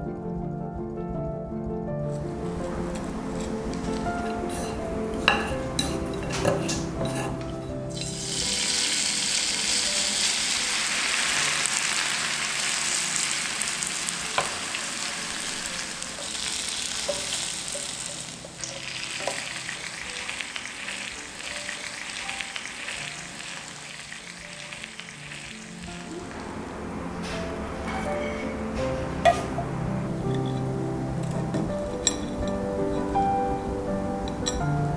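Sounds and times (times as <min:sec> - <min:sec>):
oil sizzling in a pan: 0:02.4 - 0:26.6.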